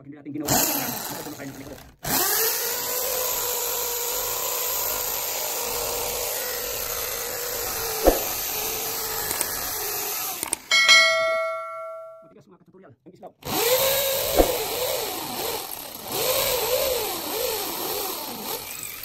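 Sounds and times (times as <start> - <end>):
power drill boring into concrete: 0.4 - 10.7, 13.4 - 19.0
bell chime sound effect: 10.7 - 12.3.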